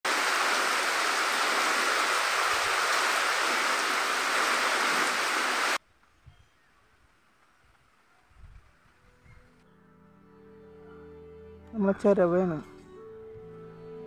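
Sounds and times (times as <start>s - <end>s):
heavy rain on leaves: 0.0s - 5.8s.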